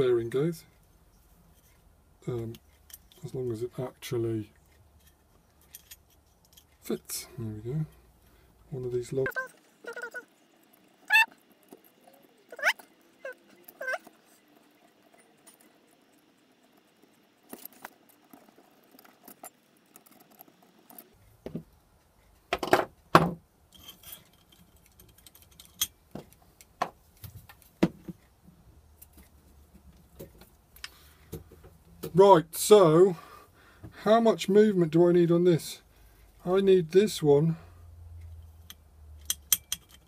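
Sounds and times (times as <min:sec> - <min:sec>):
metal hardware clinking and knocking: 0:22.5 - 0:27.0, 0:39.2 - 0:40.0.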